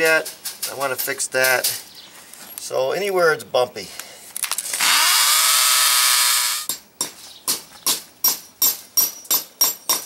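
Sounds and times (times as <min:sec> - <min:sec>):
electric drill drilling concrete: 0:04.7 - 0:06.7
hammer striking steel nail: 0:06.6 - 0:10.0.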